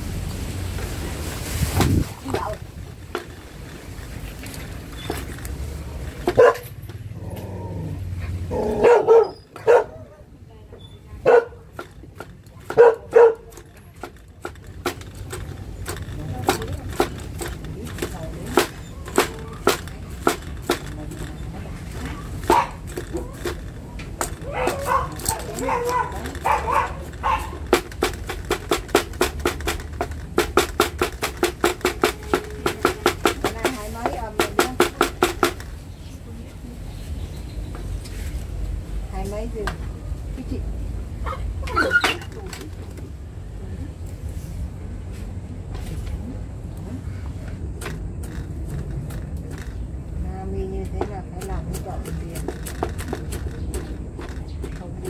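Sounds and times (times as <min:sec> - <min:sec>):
dog barking: 0:06.3 - 0:06.7, 0:08.6 - 0:10.1, 0:11.2 - 0:11.6, 0:12.7 - 0:13.6, 0:22.5 - 0:22.8, 0:24.5 - 0:27.6, 0:41.2 - 0:42.2.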